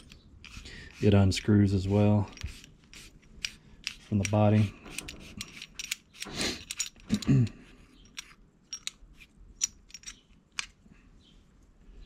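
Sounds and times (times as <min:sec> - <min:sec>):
small clicks of parts handled: 0:02.3 - 0:10.8.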